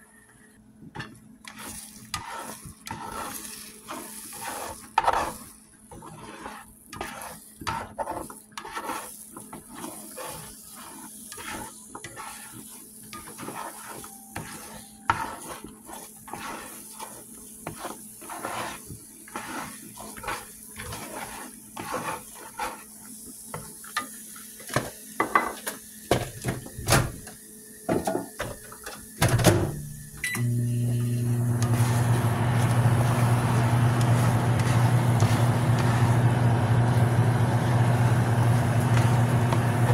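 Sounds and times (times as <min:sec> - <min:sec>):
fork scraping against a skillet: 0:01.0 - 0:24.1, 0:31.6 - 0:37.4
low machine hum: 0:29.4 - 0:39.9.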